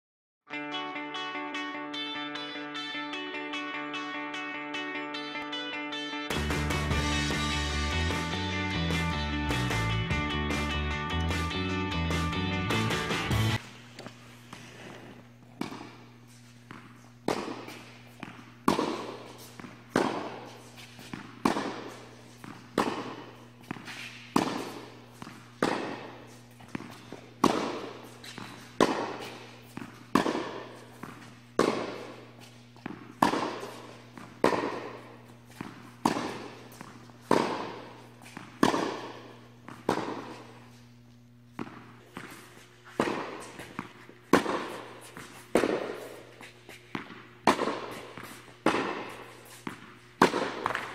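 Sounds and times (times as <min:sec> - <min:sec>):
tennis balls bouncing on court: 0:06.3 - 0:10.6, 0:13.3 - 0:50.9
tennis balls struck by rackets: 0:06.3 - 0:11.4, 0:13.2 - 0:50.9
steady low hum: 0:13.3 - 0:50.9.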